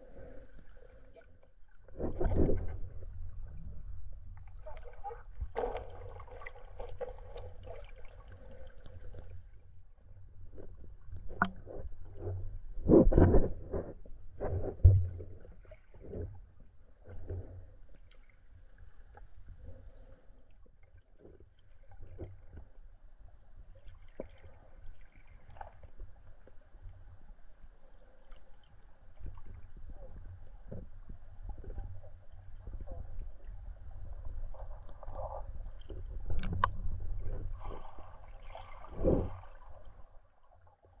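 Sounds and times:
underwater stream rumble: 0.0s - 17.8s, 28.8s - 41.0s
water sloshing: 4.5s - 9.1s.

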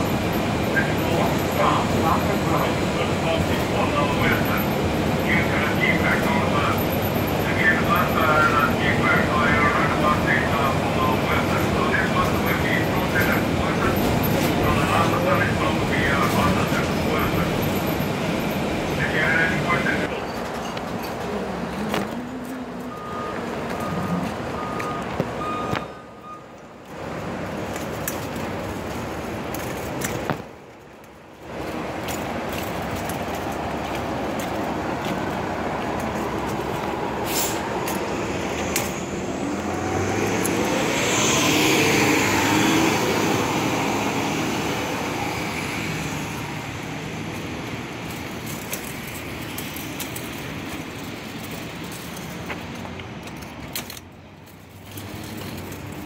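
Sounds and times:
road traffic noise: 0.0s - 56.0s
vehicle passing close: 31.5s - 53.4s.

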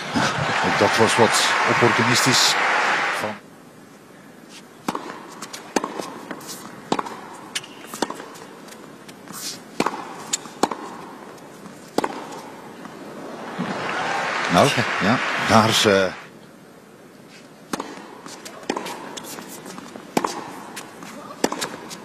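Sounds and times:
tennis ball struck by racket: 4.9s - 8.5s, 9.1s - 12.6s, 17.7s - 22.0s.

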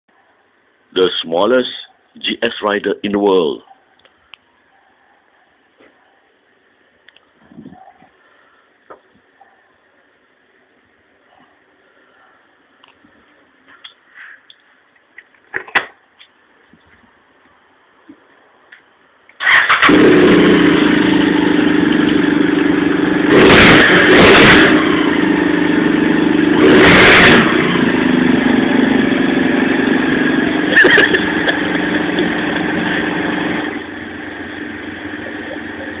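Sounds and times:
motorcycle engine idling and revving: 19.4s - 36.0s.

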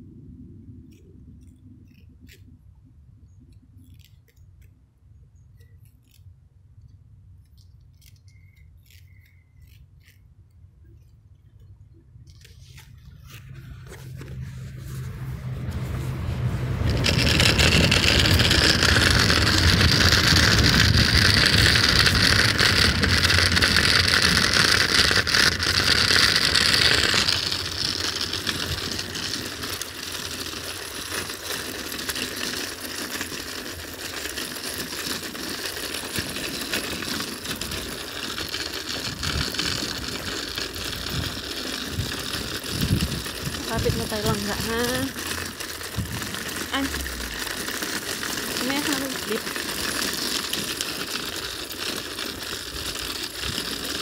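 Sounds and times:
train passing: 12.9s - 34.4s, 37.0s - 49.8s.

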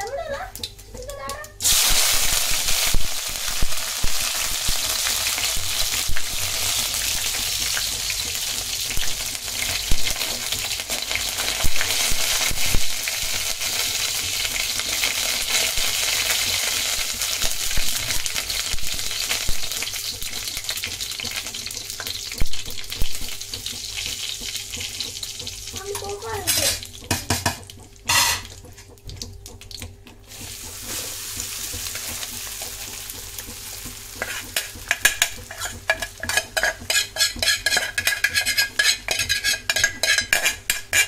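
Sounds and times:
hot oil sizzling: 0.0s - 41.0s
spatula clicking against pan: 31.7s - 41.0s.

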